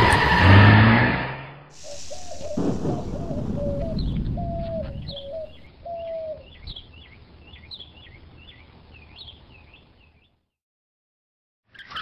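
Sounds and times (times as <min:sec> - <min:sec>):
birds chirping: 0:01.7 - 0:10.4
low rumble: 0:01.8 - 0:06.7.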